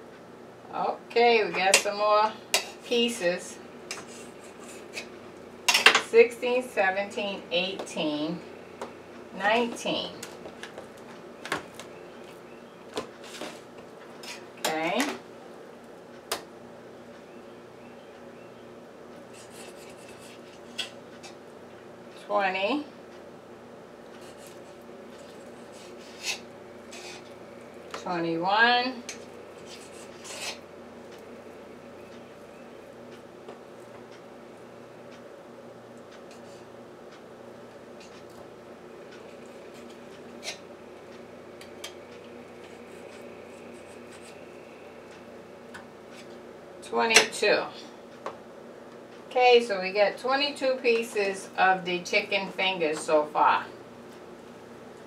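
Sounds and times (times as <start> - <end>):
steady low hum: 0.0 - 55.0
knife scraping strokes: 3.9 - 5.1, 19.3 - 21.0, 24.2 - 27.3, 29.1 - 30.6.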